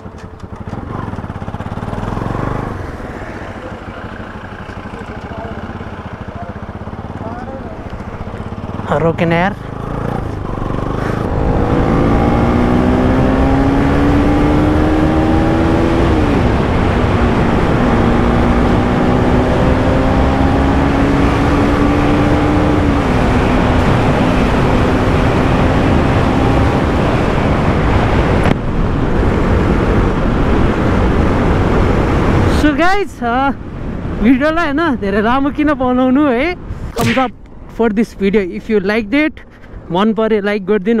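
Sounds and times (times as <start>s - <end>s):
motorcycle engine accelerating: 0.0s - 32.6s.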